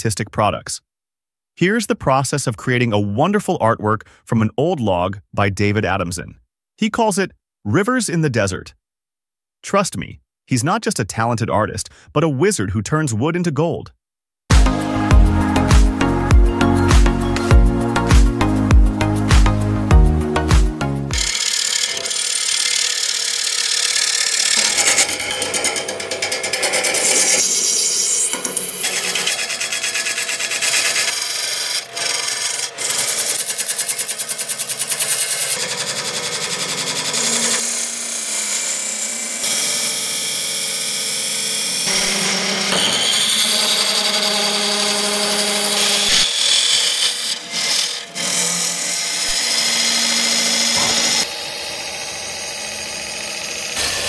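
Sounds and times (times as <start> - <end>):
lathe motor hum: 21.2 - 54.0
gouge cutting and sandpaper rubbing: 26.6 - 36.4.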